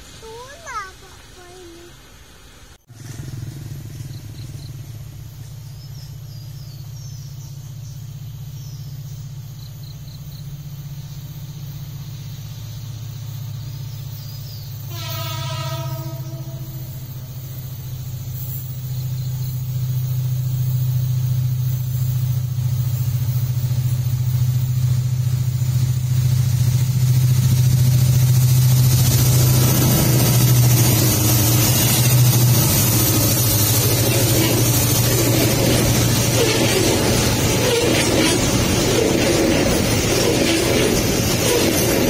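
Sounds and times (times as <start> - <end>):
train rumbling on rails: 0.0 - 42.0
locomotive engine drone: 2.3 - 42.0
train horn: 14.8 - 17.4.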